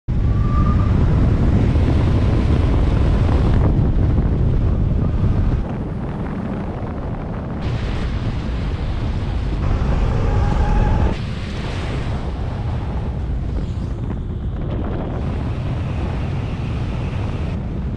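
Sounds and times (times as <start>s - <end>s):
faint high whine: 0.1s - 1.8s
road noise: 0.1s - 17.9s
wind rushing over microphone: 0.1s - 17.9s.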